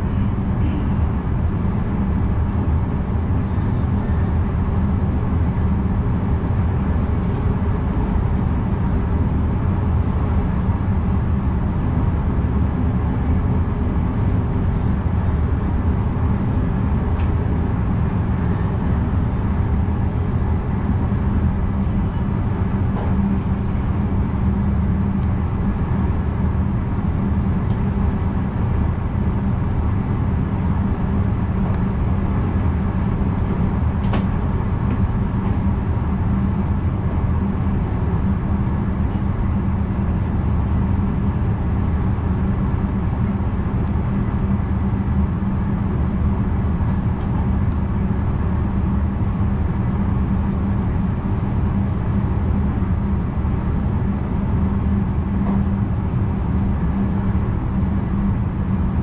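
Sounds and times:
train wheels rumbling on rails: 0.0s - 2.7s, 13.8s - 40.8s.

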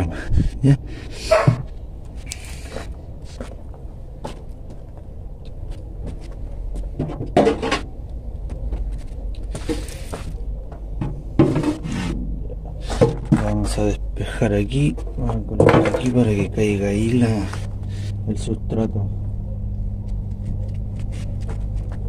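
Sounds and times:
steady low rumble: 0.0s - 22.0s
rustles: 0.4s - 7.0s, 7.6s - 10.6s.

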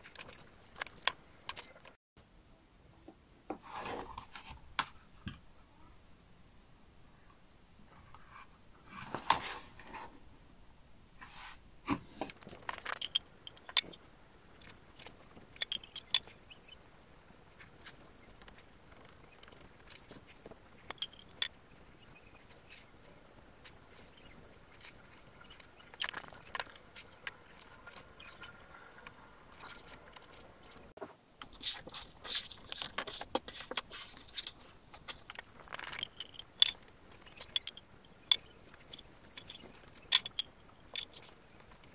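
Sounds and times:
glue brush strokes: 29.6s - 41.8s.

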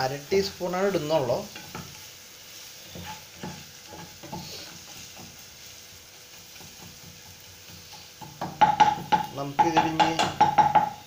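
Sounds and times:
onion frying in oil: 0.0s - 11.0s.

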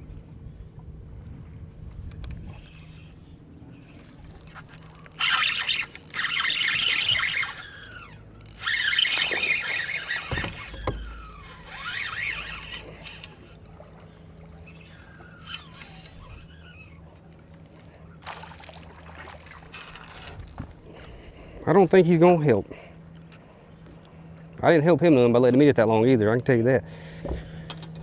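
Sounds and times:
fishing reel squealing and whirring: 2.4s - 20.4s
dull thump: 10.2s - 11.2s.

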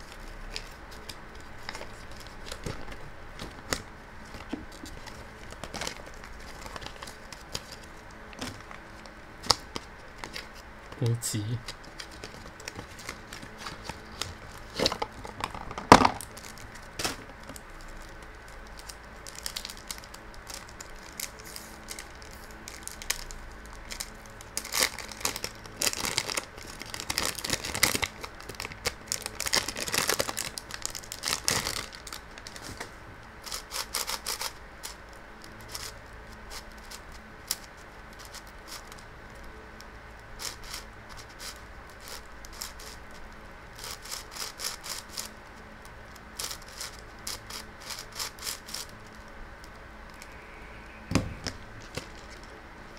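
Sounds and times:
plastic wrap crinkling and tearing: 0.0s - 39.4s
sharp knock: 51.1s - 51.6s.

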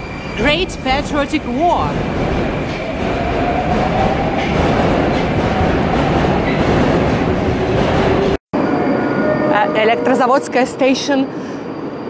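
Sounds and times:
train wheels and motors rumbling: 0.0s - 8.4s.

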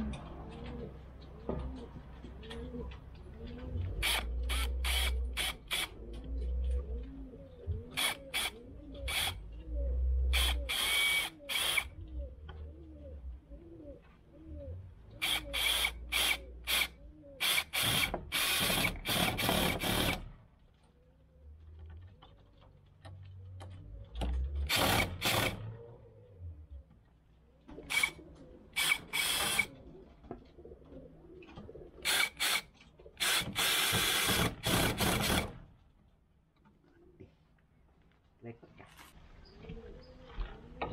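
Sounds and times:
cordless drill driving screws into wood: 4.0s - 6.0s, 8.0s - 9.4s, 10.3s - 11.9s, 15.2s - 20.4s, 24.6s - 25.8s, 28.8s - 29.7s, 32.0s - 35.7s.

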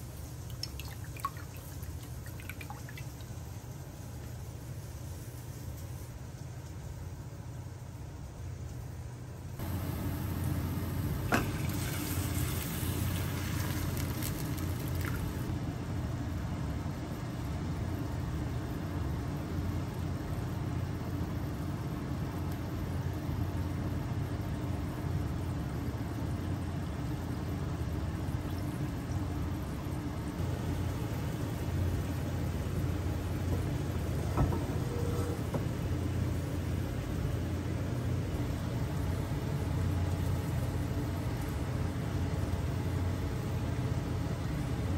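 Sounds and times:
steady low hum: 0.0s - 44.9s
sauce simmering: 0.1s - 5.7s, 9.6s - 15.5s
sauce pouring into pan: 11.3s - 15.4s.

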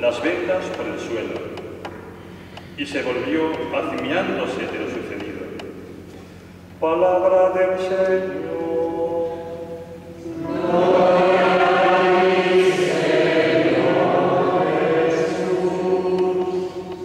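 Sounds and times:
congregation singing: 6.8s - 17.0s.

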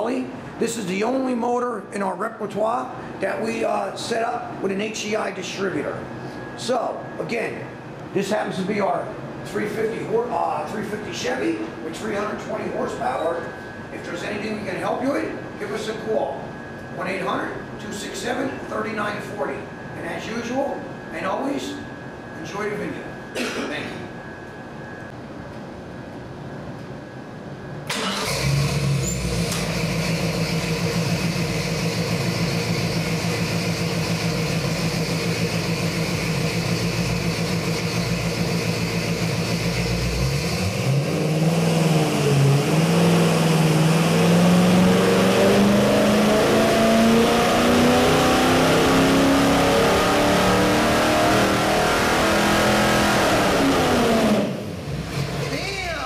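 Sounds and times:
engine idling and revving: 27.9s - 55.6s.

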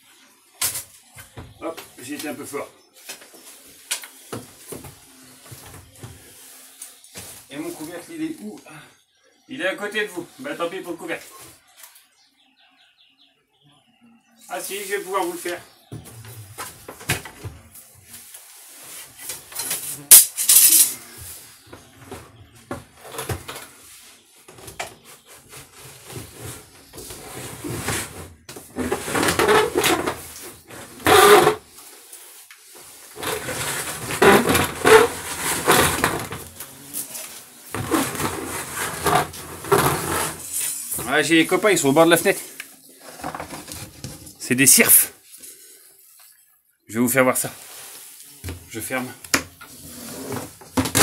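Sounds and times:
plastic bucket knocking and scraping: 24.5s - 31.6s, 33.2s - 36.6s, 37.7s - 40.4s, 43.0s - 44.4s, 49.4s - 51.0s.

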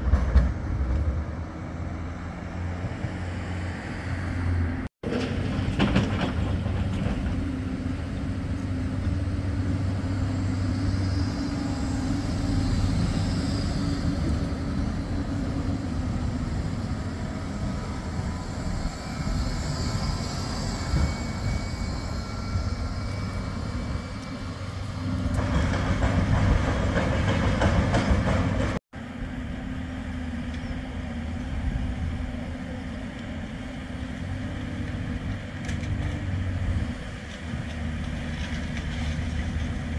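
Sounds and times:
tram rumbling past: 0.0s - 39.9s
faint high whine: 9.8s - 25.0s.

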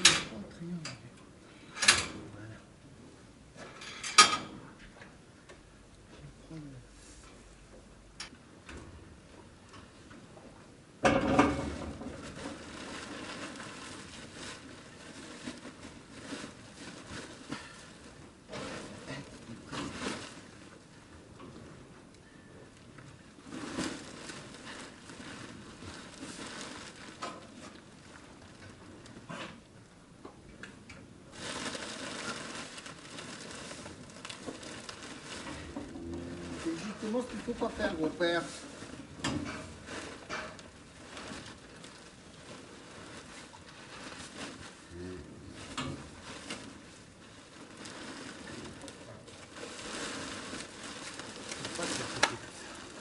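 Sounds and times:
rustling in straw: 12.1s - 21.0s, 23.4s - 28.6s, 31.3s - 39.1s, 39.7s - 53.0s.

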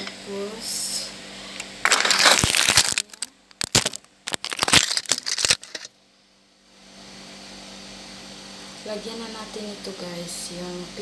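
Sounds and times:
packaging crinkling: 1.8s - 5.9s.

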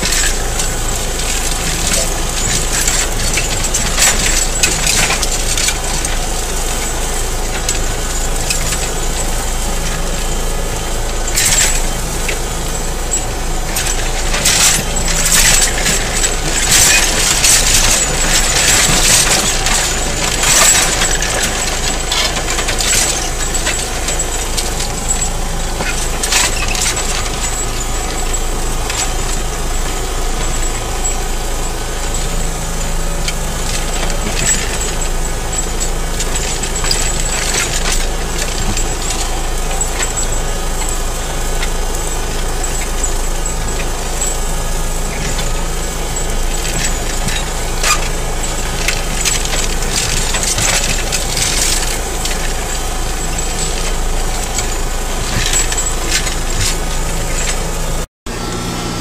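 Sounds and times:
stones scraping against plough: 0.0s - 58.1s
tractor engine running: 0.0s - 59.0s.

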